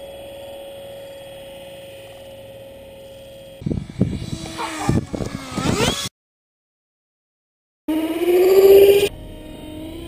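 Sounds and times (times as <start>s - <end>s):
electric motor whining: 0.2s - 6.1s
wind buffeting microphone: 3.6s - 6.1s.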